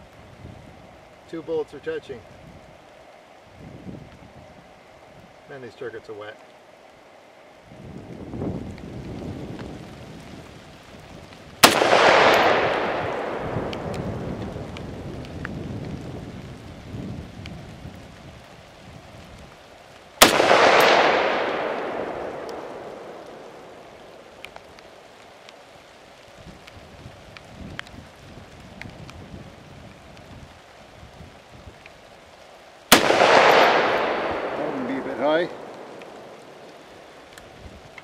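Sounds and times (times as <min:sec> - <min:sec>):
rifle shots with rolling echo: 0:11.6 - 0:15.0, 0:20.2 - 0:25.2, 0:32.9 - 0:37.3.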